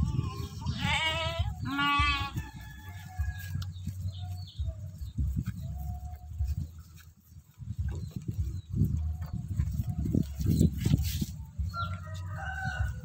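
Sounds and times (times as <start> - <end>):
sheep bleating: 0.0 - 2.4.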